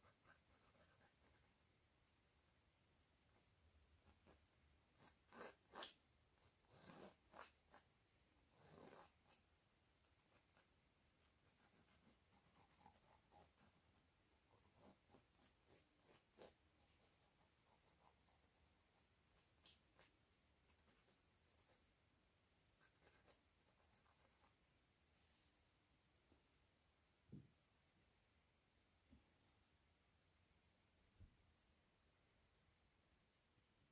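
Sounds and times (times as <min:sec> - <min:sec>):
drawing tool scratching canvas: 0:04.0 - 0:21.8, 0:22.8 - 0:24.6.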